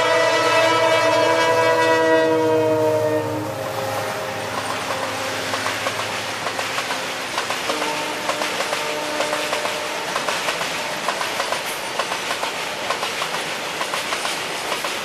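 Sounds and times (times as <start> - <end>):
locomotive horn blaring: 0.0 - 5.6, 7.7 - 10.2
train wheels clickety-clack: 4.4 - 15.0.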